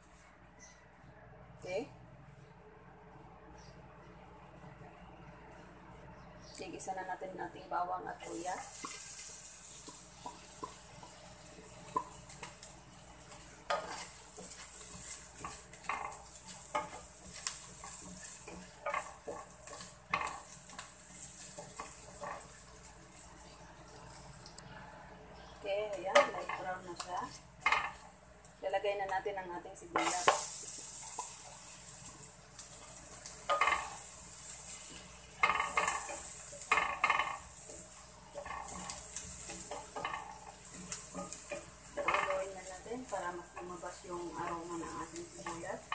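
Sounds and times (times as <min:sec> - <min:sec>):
garlic sizzling in hot oil: 0:06.7 - 0:45.9
wooden spatula scraping a pan: 0:08.2 - 0:23.3, 0:29.9 - 0:45.9.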